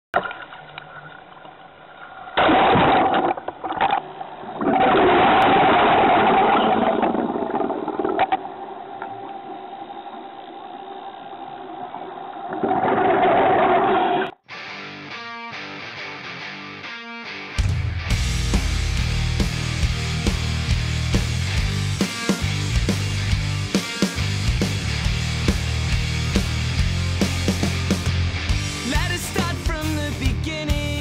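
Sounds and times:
steady hum: 0.3s - 14.4s.

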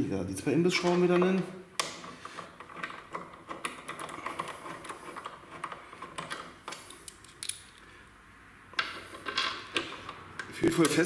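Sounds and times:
metallic clicks of bolts and key: 1.1s - 7.8s.

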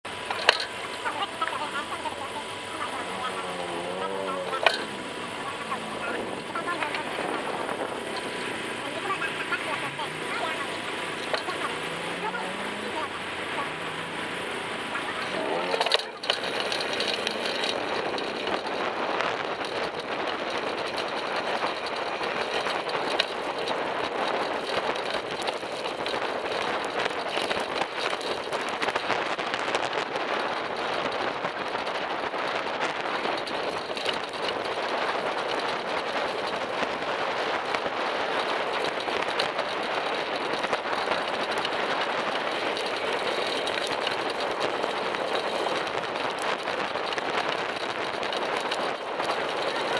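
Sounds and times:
bicycle road noise: 0.0s - 49.9s
motor traffic passing: 0.0s - 49.9s
wind rushing: 2.4s - 15.5s.

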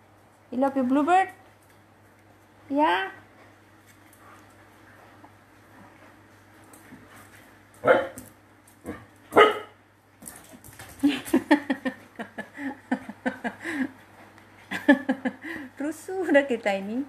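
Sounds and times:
dog barking: 7.8s - 8.2s, 8.9s - 9.8s.

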